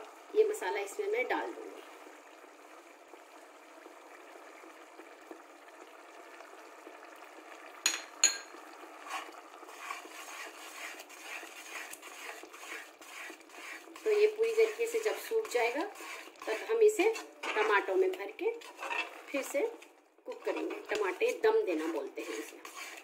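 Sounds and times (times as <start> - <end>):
metal spoon scraping pot: 9.0 - 23.0.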